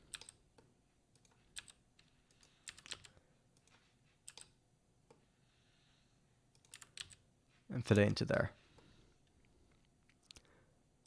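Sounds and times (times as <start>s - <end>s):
keystrokes on computer keyboard: 0.0s - 4.6s, 6.5s - 7.2s.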